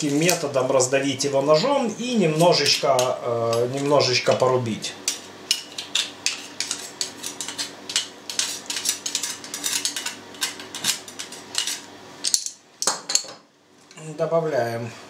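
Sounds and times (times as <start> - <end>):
knife scraping metal garlic press: 5.8 - 11.8.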